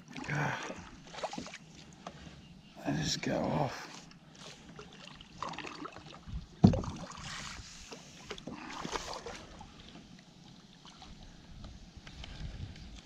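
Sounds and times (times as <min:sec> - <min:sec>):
water splashing: 0:00.0 - 0:02.2, 0:03.8 - 0:11.2
knock on kayak hull: 0:06.6 - 0:06.9.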